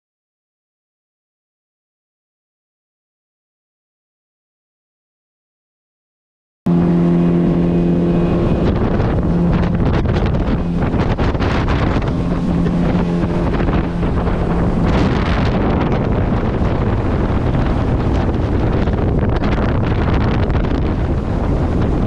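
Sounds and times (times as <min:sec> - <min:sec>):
motorboat engine: 0:06.7 - 0:22.0
water rushing past hull: 0:06.7 - 0:22.0
wind buffeting microphone: 0:06.7 - 0:22.0.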